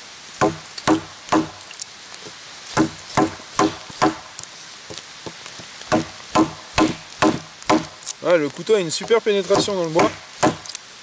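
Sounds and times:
sharp woody knocks: 0.4s - 1.6s, 2.8s - 4.3s, 5.2s - 8.0s, 9.0s - 10.7s.

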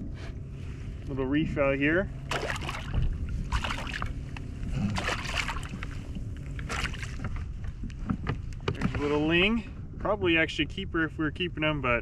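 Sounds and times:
low steady rumble: 0.0s - 12.0s
water splashing against kayak: 2.3s - 4.2s, 4.9s - 7.8s.

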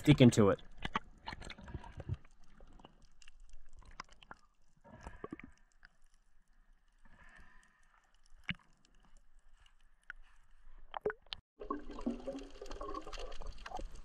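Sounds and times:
underwater crackling and bubbling: 0.2s - 14.0s
water sloshing and splashing: 0.6s - 7.4s, 10.8s - 14.0s.

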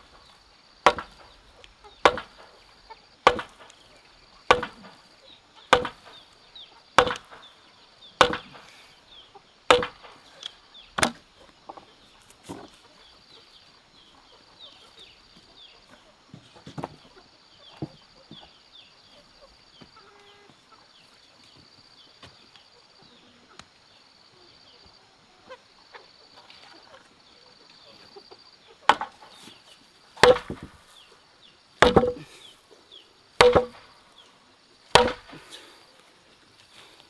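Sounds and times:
blade chopping wood: 0.8s - 1.4s, 2.0s - 2.6s, 3.2s - 3.8s, 4.5s - 5.0s, 5.7s - 6.2s, 7.0s - 7.5s, 8.2s - 8.7s, 9.7s - 10.2s, 11.0s - 11.2s, 28.9s - 29.2s, 30.2s - 30.8s, 31.8s - 32.4s, 33.4s - 33.9s, 34.9s - 35.6s.

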